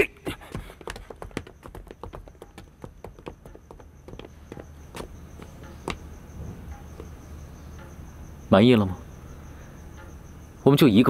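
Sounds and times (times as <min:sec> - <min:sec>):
footsteps on hard floor: 0:00.4 - 0:07.2.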